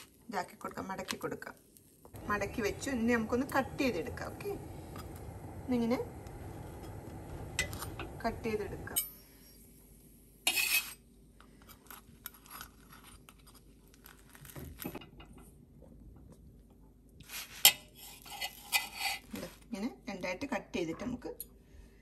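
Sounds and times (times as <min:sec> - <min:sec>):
knife and fork scraping pan: 0:10.5 - 0:11.0, 0:17.4 - 0:19.6.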